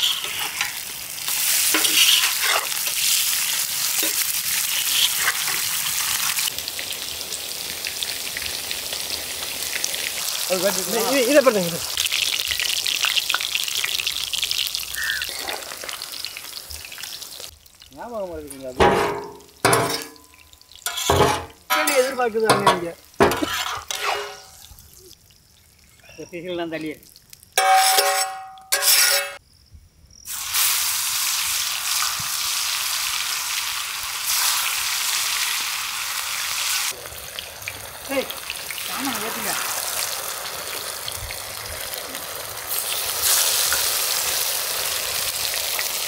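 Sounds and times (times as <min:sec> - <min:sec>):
fish sizzling on a griddle: 0:00.0 - 0:29.4, 0:30.3 - 0:46.0
metal spatulas scraping steel: 0:01.7 - 0:02.8, 0:18.8 - 0:20.2, 0:20.9 - 0:24.6, 0:27.6 - 0:29.4.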